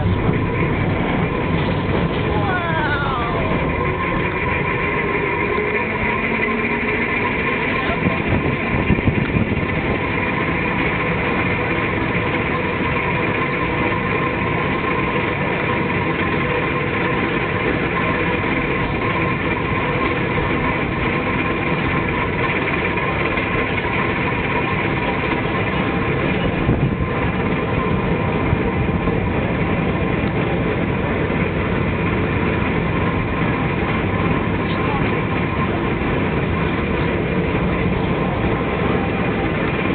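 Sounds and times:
steady high tones: 0.0s - 8.9s
even hum: 0.0s - 39.9s
turntable mechanical rumble: 0.0s - 39.9s.

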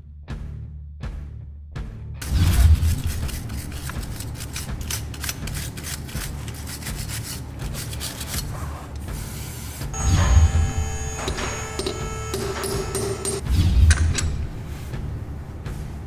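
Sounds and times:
wire brush scrubbing metal: 2.2s - 10.0s.

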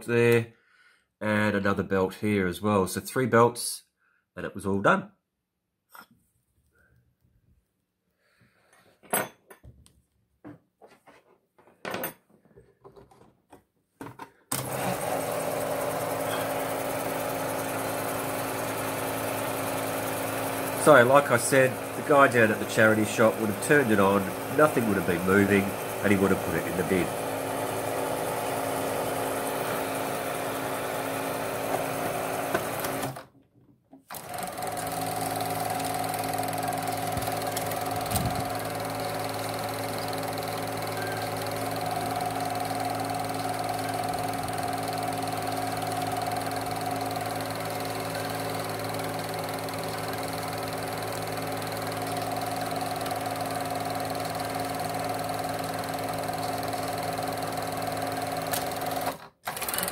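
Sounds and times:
film projector whirring hum: 14.5s - 33.3s, 34.1s - 59.9s.

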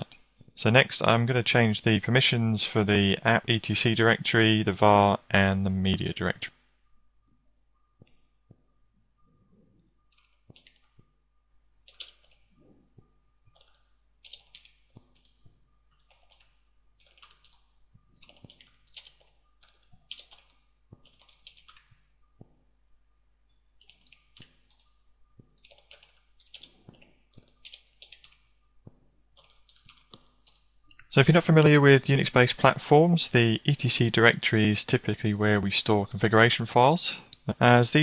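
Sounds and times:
computer keyboard typing: 10.1s - 11.0s, 11.8s - 22.5s, 23.8s - 30.7s.

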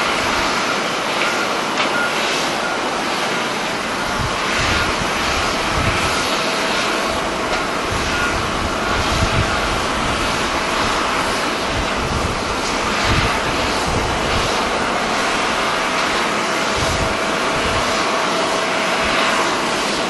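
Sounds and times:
distant jet aircraft: 0.0s - 20.0s
wind buffeting microphone: 4.0s - 19.8s.

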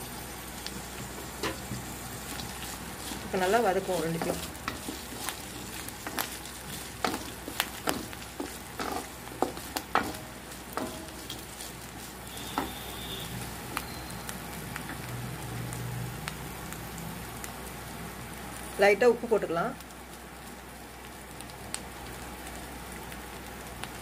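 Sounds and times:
faint oil sizzle: 0.0s - 24.0s
wooden spatula scraping pan: 2.4s - 13.1s.

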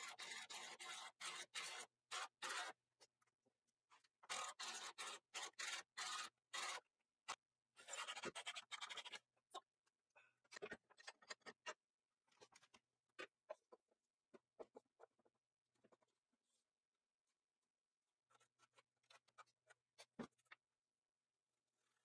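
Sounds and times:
quick scratching on a surface: 0.0s - 2.8s, 4.2s - 6.9s, 7.8s - 9.3s.

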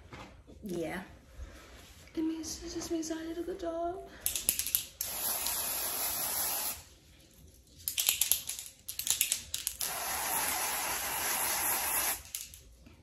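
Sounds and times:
aerosol spray can hissing: 5.0s - 6.9s, 9.8s - 12.5s.

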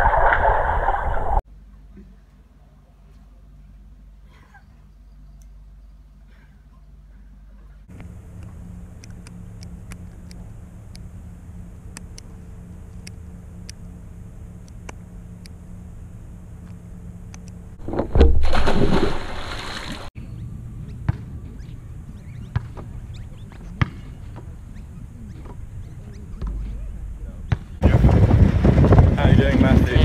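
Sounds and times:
pool water splashing: 0.0s - 1.4s, 17.8s - 20.1s
faint outdoor background: 1.4s - 30.0s.

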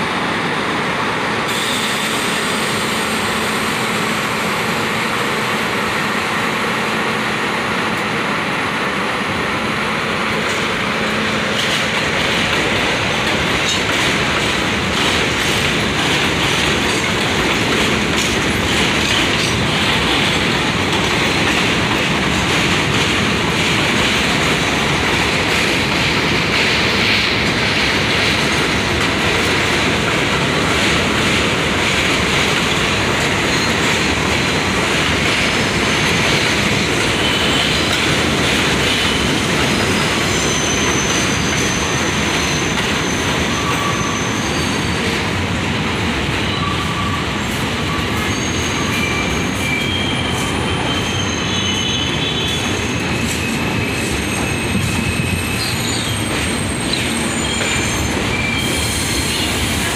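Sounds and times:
train rumbling on rails: 0.0s - 59.9s
high-pitched wheel squeals: 40.2s - 45.0s, 46.5s - 59.6s.

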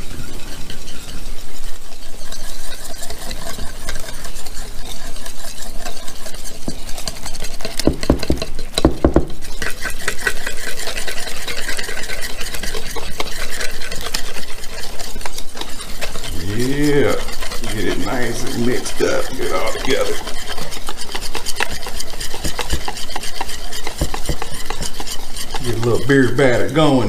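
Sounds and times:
wire whisk scraping a bowl: 0.0s - 27.0s
heavy thumps: 7.9s - 9.4s.

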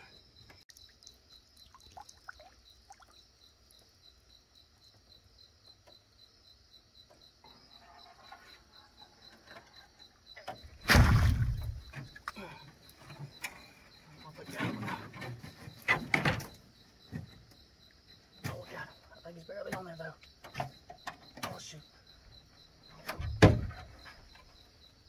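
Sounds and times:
crickets trilling: 0.0s - 25.0s
water sounds: 0.7s - 3.3s
loud thump: 10.8s - 11.9s, 23.1s - 23.9s.

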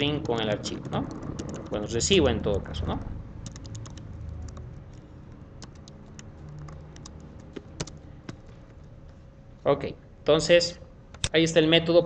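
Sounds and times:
computer keyboard typing: 0.0s - 9.0s.

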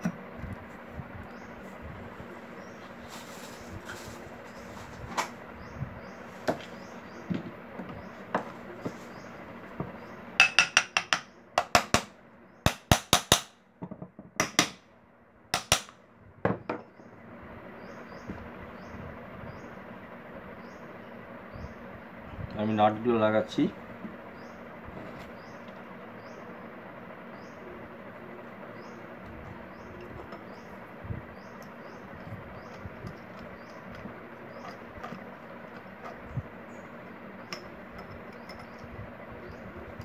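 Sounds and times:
sharp metallic knocks: 10.4s - 12.1s, 15.6s - 15.9s.

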